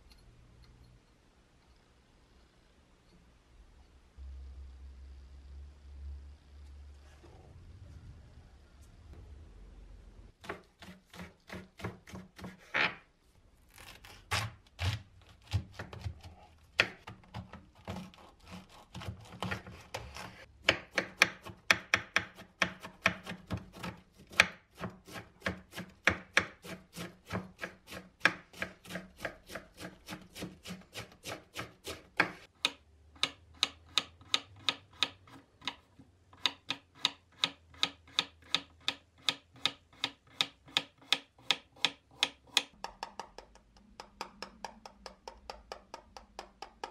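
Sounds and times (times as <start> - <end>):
knife chopping on wooden board: 10.4 - 12.6, 14.3 - 35.8.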